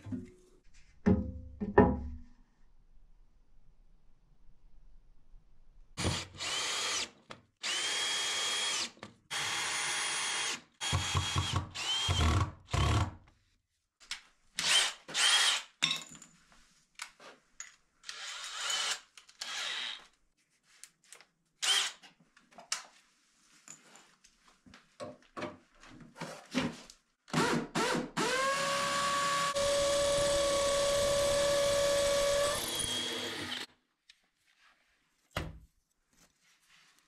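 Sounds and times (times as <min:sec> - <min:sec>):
cordless drill whine: 0:06.0 - 0:12.4, 0:18.1 - 0:20.0, 0:28.2 - 0:33.7.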